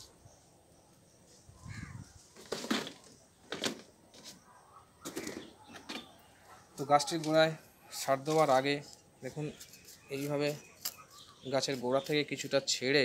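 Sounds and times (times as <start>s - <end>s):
crow cawing: 1.6s - 2.1s.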